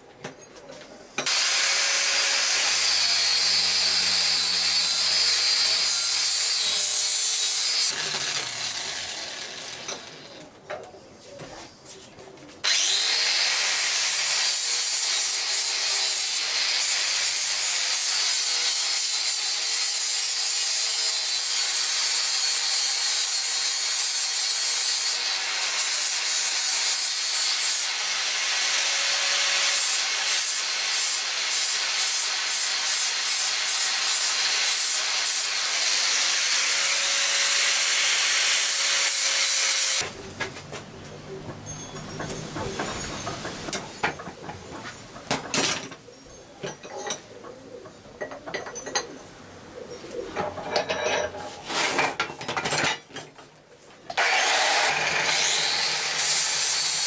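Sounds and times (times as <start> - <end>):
angle grinder grinding steel: 1.2 - 10.4, 12.6 - 40.2, 54.1 - 57.0.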